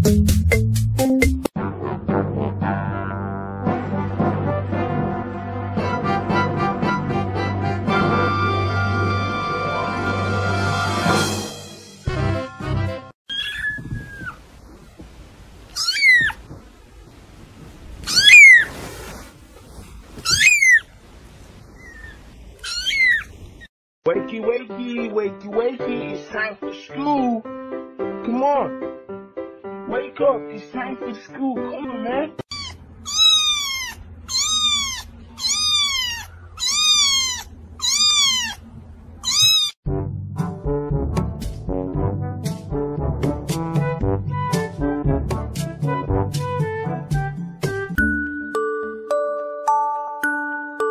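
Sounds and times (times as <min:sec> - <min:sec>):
brass music: 0:01.6 - 0:13.1, 0:39.9 - 0:47.9
kitten mewing: 0:15.7 - 0:16.4, 0:18.0 - 0:18.7, 0:20.2 - 0:20.8, 0:21.8 - 0:23.5, 0:32.5 - 0:39.8.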